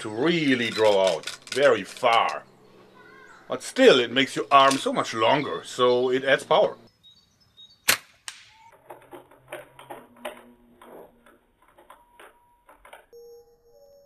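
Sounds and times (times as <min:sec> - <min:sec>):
slingshot clicks and creaks: 0:00.4 - 0:02.5.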